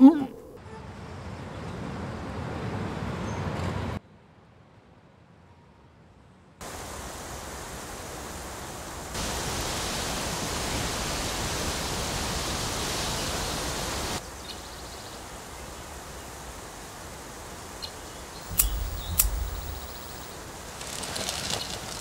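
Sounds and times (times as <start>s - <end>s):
stream flowing: 18.4s - 20.3s.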